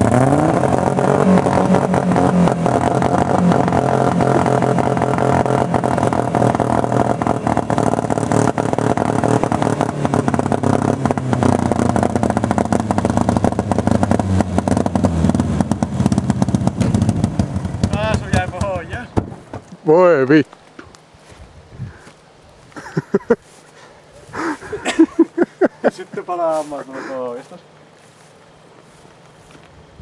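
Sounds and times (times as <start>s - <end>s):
car engine running: 0.0s - 19.6s.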